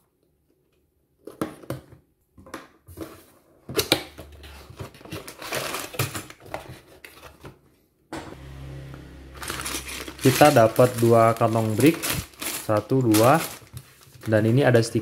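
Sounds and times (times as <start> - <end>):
cardboard rustling and scraping: 4.3 - 7.6, 9.4 - 14.6
plastic bags sliding out: 9.4 - 14.8.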